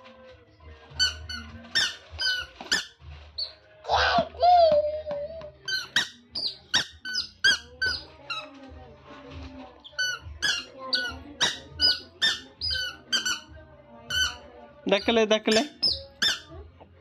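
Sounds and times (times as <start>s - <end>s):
toy squeaker squeaking: 0.9s - 3.6s, 5.6s - 8.5s, 9.8s - 16.6s.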